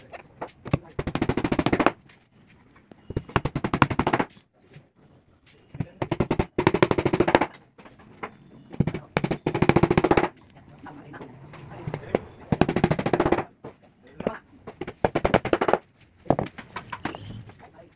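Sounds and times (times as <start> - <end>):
hammer tapping nails into board: 0.6 - 2.0, 3.2 - 4.3, 5.9 - 7.6, 8.8 - 10.3, 12.5 - 13.5, 14.6 - 15.8.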